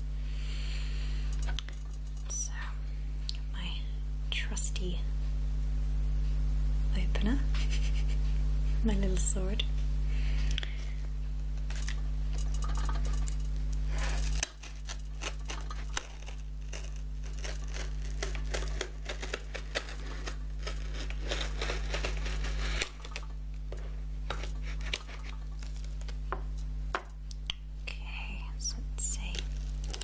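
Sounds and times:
steady low hum: 0.0 - 30.0
letter opener cutting packing tape: 14.4 - 23.2.

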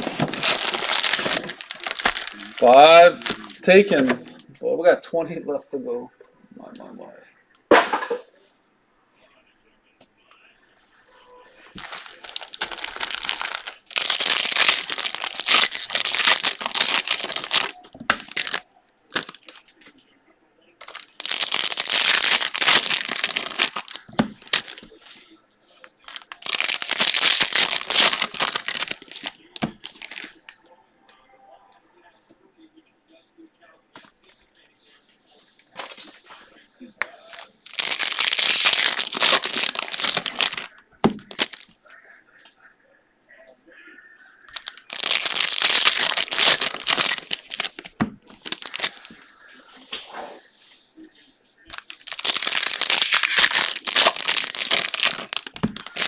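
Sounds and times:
foil wrappers crinkling and tearing: 0.0 - 4.1, 11.8 - 19.7, 20.8 - 25.2, 25.9 - 30.5, 37.3 - 41.7, 44.5 - 49.2, 51.7 - 56.0.

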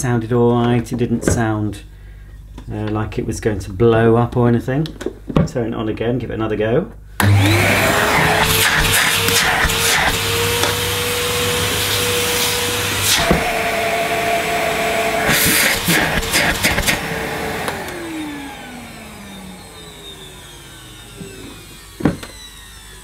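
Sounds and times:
vacuum cleaner motor whining: 7.2 - 23.0.

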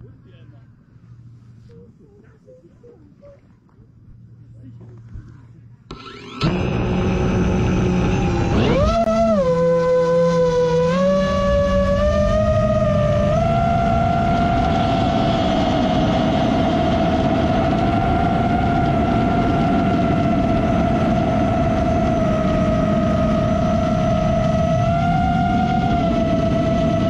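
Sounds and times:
drone motors whining: 5.9 - 27.0.

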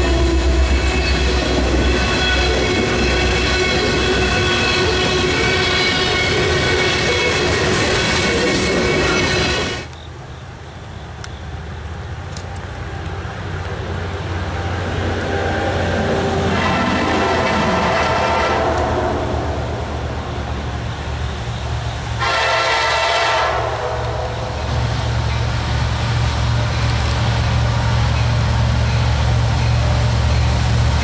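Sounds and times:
train air horn blasts: 0.0 - 7.8, 16.2 - 19.8, 22.2 - 24.6.

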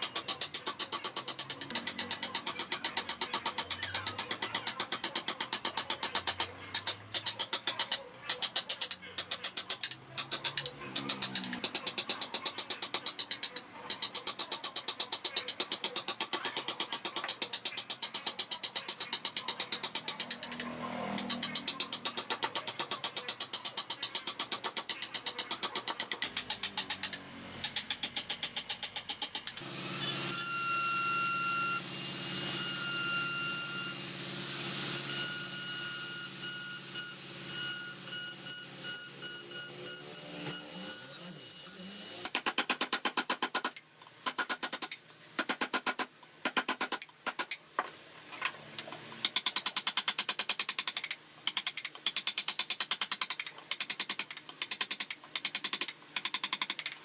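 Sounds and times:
carving blade scraping wood: 0.0 - 30.3, 32.0 - 47.6
rotary tool whining: 0.0 - 42.4.

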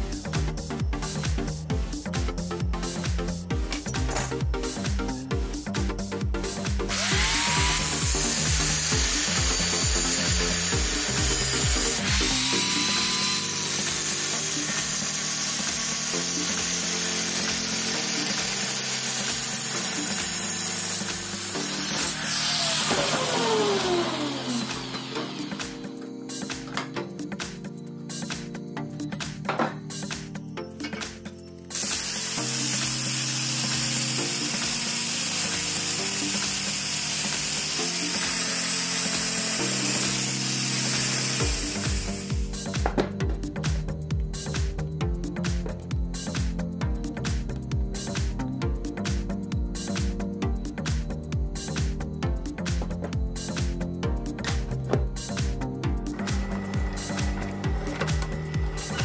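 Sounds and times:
background music: 0.0 - 59.0
angle grinder cutting steel: 6.9 - 25.9, 31.7 - 42.6, 56.1 - 59.0.

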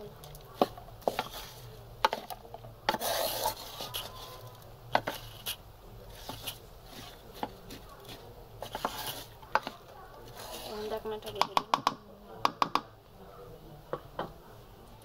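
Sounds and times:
wooden spatula scraping metal pan: 0.6 - 11.6.

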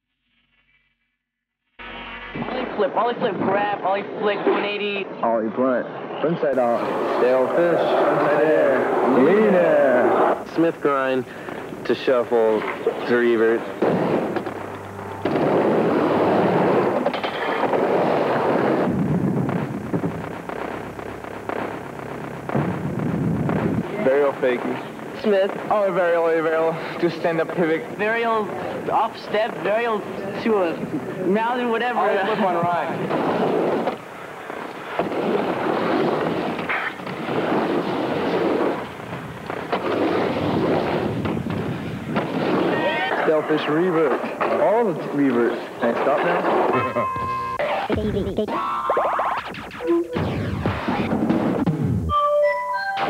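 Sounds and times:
skateboard wheels rolling on ramp: 6.6 - 21.8, 22.4 - 46.8
skateboard wheels rattling on ramp: 15.3 - 18.9, 34.8 - 43.3.

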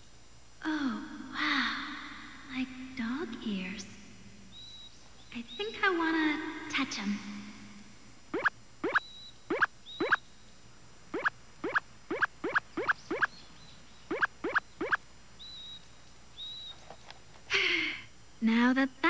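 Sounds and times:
cartoon squeaks rising in pitch: 8.4 - 10.2, 11.2 - 13.3, 14.1 - 15.0
faint high chirps: 8.4 - 10.6, 11.2 - 16.8.

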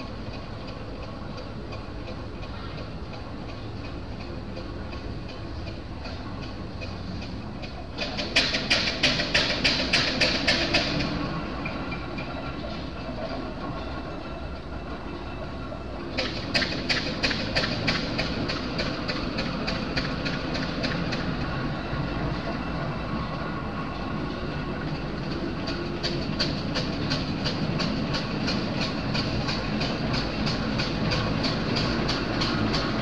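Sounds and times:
engine and wheels rumbling: 0.0 - 33.0
steam engine exhaust chuffing: 16.2 - 22.2, 24.7 - 33.0.

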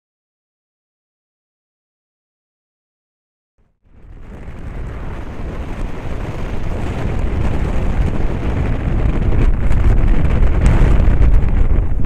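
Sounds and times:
strong wind buffeting microphone: 3.8 - 12.0.

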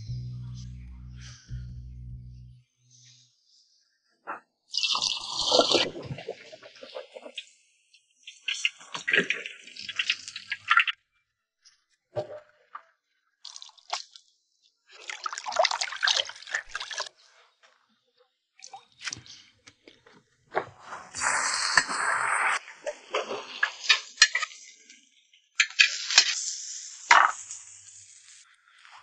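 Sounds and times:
squelching and dripping vegetables: 13.4 - 14.2
pork frying in a wok: 25.6 - 28.4.

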